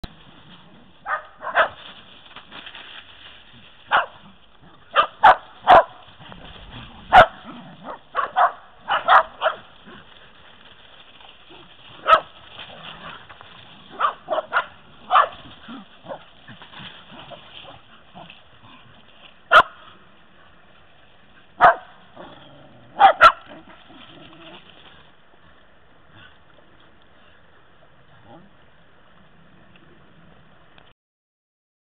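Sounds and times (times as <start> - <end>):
dog barking: 1.0 - 1.8, 3.9 - 4.2, 4.9 - 6.0, 7.1 - 9.7, 12.0 - 12.3, 13.9 - 15.4, 19.5 - 19.9, 21.6 - 22.0, 22.9 - 23.6.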